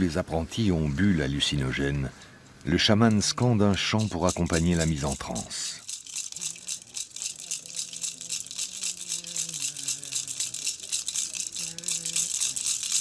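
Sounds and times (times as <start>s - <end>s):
gourd rattle shaken fast: 3.0s - 13.0s.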